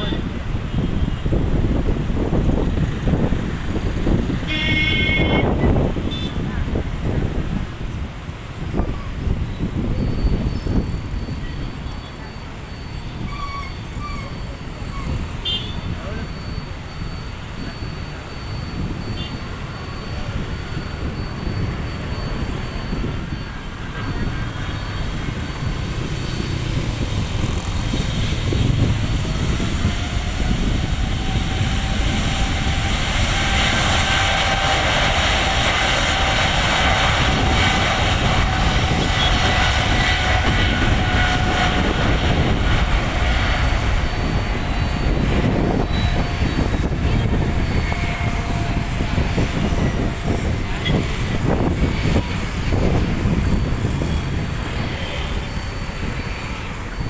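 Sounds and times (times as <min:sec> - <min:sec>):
thin engine whine: 0:16.0 - 0:57.0
jet engines spooling up: 0:16.3 - 0:57.0.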